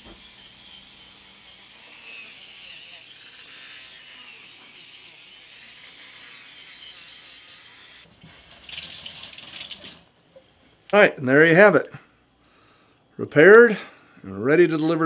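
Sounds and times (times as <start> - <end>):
dental handpiece whining: 0.0 - 8.1.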